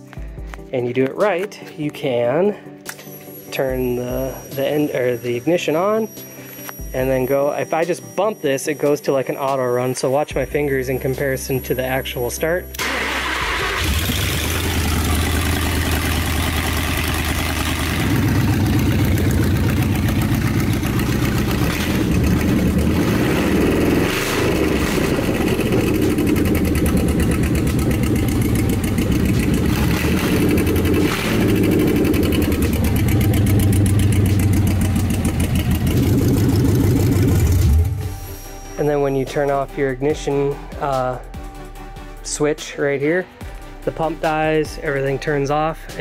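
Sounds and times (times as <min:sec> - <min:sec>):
engine running: 0:12.8 - 0:38.3.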